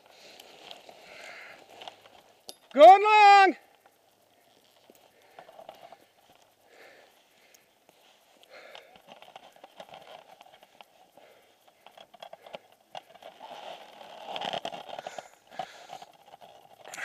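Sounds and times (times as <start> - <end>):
hard breathing: 0.0 - 2.2, 4.4 - 9.8, 10.6 - 13.9, 14.8 - 17.0.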